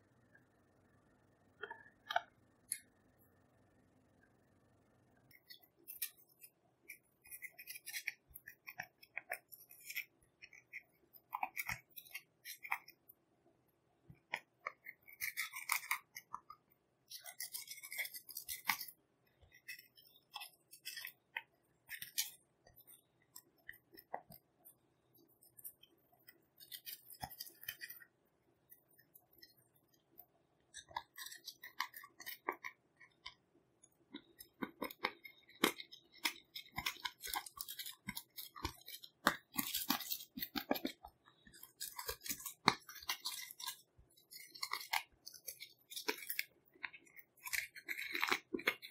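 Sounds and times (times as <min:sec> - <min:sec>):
blade scratching eyeshadow powder: 0:05.3 - 0:13.0, 0:14.3 - 0:24.3, 0:34.2 - 0:48.9.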